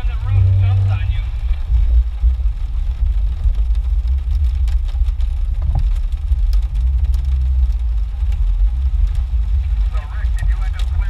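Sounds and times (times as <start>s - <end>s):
car engine rumbling: 0.0s - 11.0s
light ticks: 3.0s - 11.0s.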